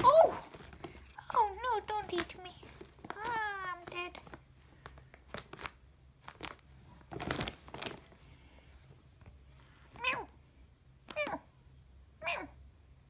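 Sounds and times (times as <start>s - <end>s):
plastic bag rustling and crackling: 0.0s - 10.2s
cat meowing: 10.0s - 10.3s, 12.2s - 12.6s.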